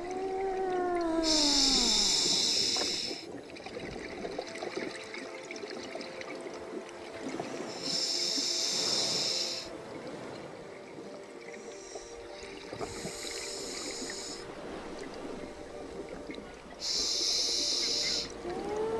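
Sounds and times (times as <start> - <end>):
scuba regulator bubbling exhalations: 0.0 - 3.3
regulator hiss: 1.2 - 3.3, 7.7 - 9.7, 12.9 - 14.4, 16.8 - 18.4.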